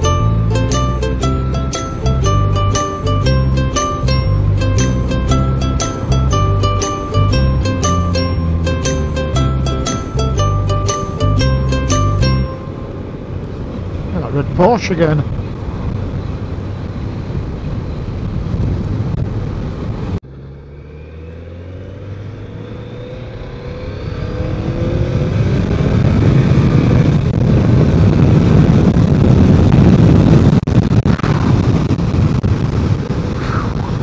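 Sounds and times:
motorcycle engine accelerating: 0:00.0 - 0:12.8, 0:20.2 - 0:29.9
wind rush: 0:00.0 - 0:20.2, 0:23.4 - 0:34.0
road noise: 0:00.0 - 0:34.0.

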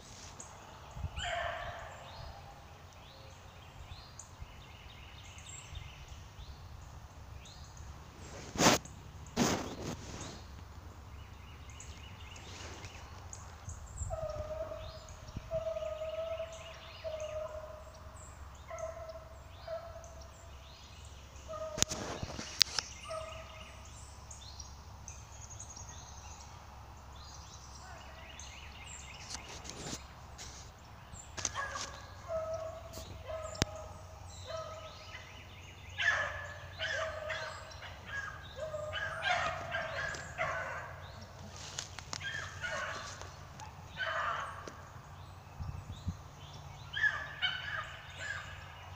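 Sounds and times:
hounds baying: 0:00.7 - 0:03.4, 0:13.8 - 0:20.7, 0:21.3 - 0:23.9, 0:31.4 - 0:45.1, 0:46.8 - 0:48.9.

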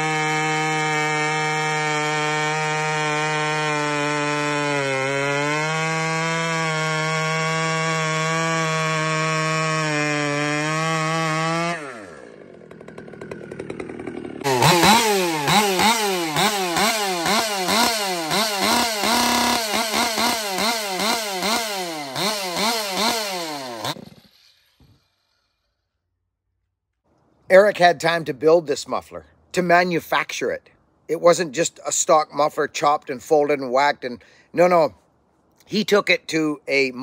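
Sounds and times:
chainsaw revving: 0:00.0 - 0:24.9.

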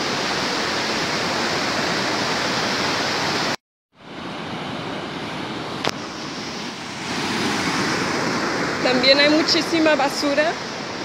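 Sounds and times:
surf breaking on shore: 0:04.2 - 0:11.0.

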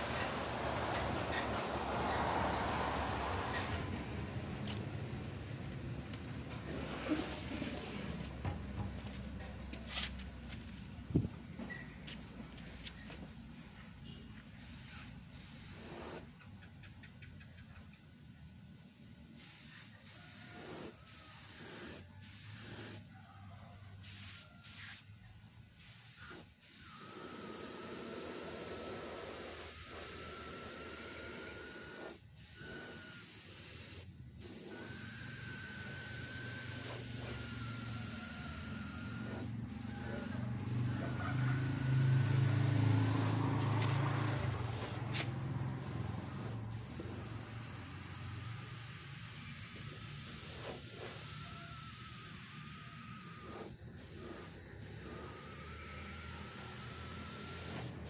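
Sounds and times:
air blow gun hissing: 0:00.0 - 0:03.9, 0:14.6 - 0:16.3, 0:19.4 - 0:23.1, 0:25.8 - 0:58.0.

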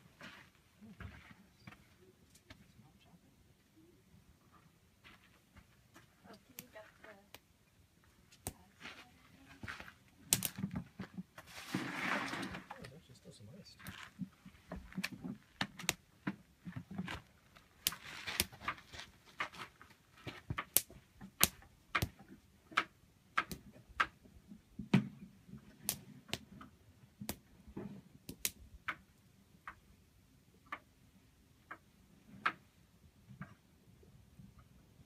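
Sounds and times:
low rumble of burning fire: 0:02.8 - 0:30.5
campfire wood crackling and popping: 0:05.7 - 0:08.9, 0:09.6 - 0:13.0, 0:13.7 - 0:30.0.

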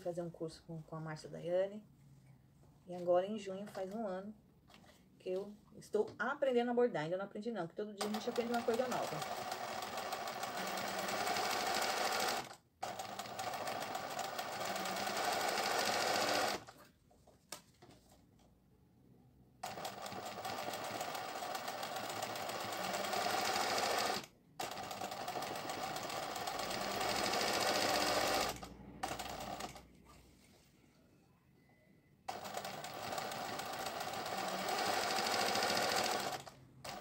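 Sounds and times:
sewing machine stitching: 0:08.0 - 0:16.8, 0:19.6 - 0:29.9, 0:32.3 - 0:37.0.

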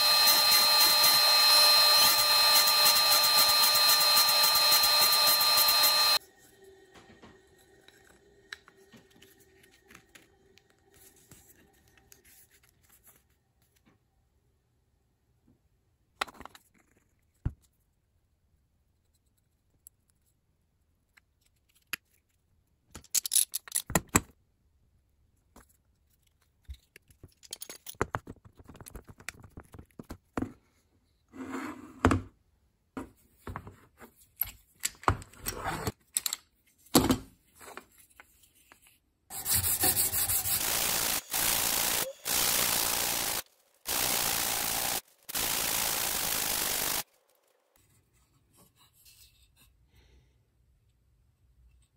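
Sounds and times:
wood pieces clicking and knocking: 0:22.9 - 0:24.3
wood rubbed on sandpaper: 0:39.3 - 0:41.3.

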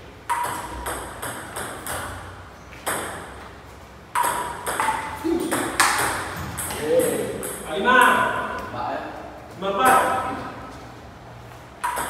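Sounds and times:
ping-pong ball clicking: 0:00.3 - 0:02.2, 0:04.1 - 0:08.2, 0:11.8 - 0:12.0.

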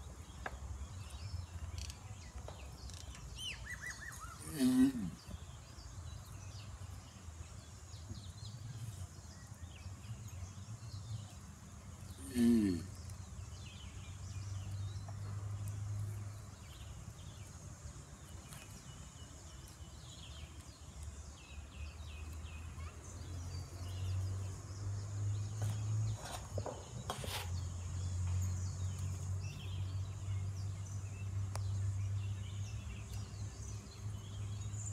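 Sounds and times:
bird chirps: 0:00.0 - 0:34.9
tortoise groaning: 0:04.2 - 0:05.4, 0:12.1 - 0:13.1.

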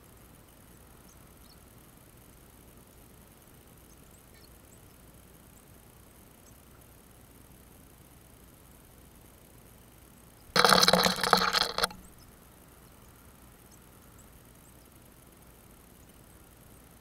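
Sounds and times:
small birds scrabbling on feeder: 0:10.6 - 0:12.1.

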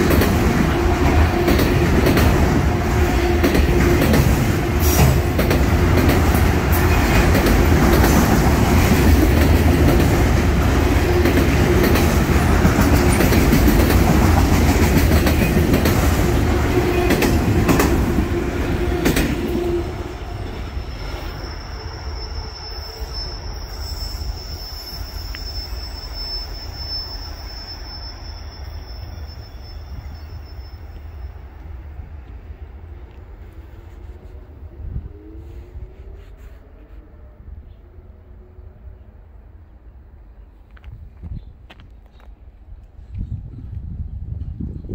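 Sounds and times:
train wheel clacks: 0:00.0 - 0:02.7, 0:03.4 - 0:19.6
train wheels rumbling on rails: 0:00.0 - 0:37.0
high wheel squeal: 0:19.6 - 0:31.5.

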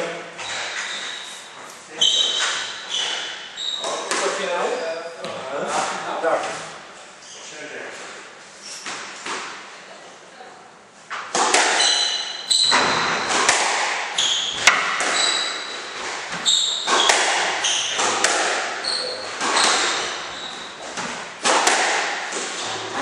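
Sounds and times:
shoes squeaking on wooden floor: 0:00.4 - 0:07.6, 0:11.8 - 0:13.5, 0:14.1 - 0:21.2, 0:22.4 - 0:23.0
squash ball cracking off rackets: 0:11.2 - 0:23.0.

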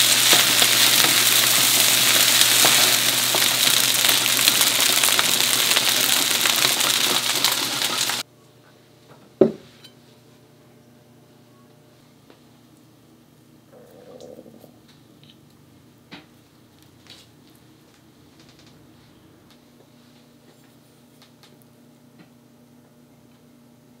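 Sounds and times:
rice sizzling in a frying pan: 0:00.0 - 0:08.3.

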